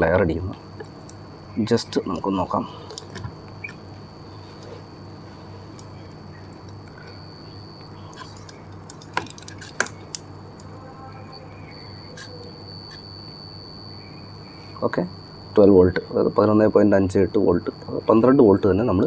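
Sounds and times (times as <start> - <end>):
refrigerator compressor hum: 0.0 - 19.0
faint high-pitched tone: 10.6 - 19.0.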